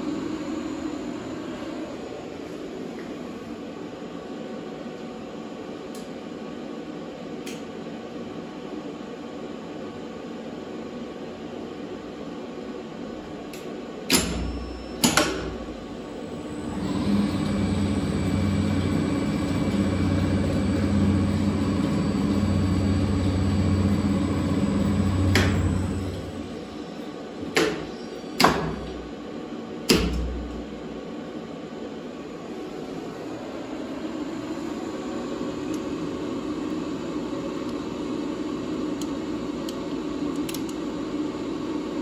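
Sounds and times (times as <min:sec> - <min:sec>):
electric motor humming: 0:16.4 - 0:26.6.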